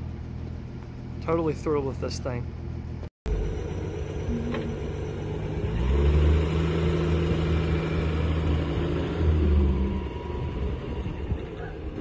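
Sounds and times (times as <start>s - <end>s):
truck engine pulling away: 0.0s - 12.0s.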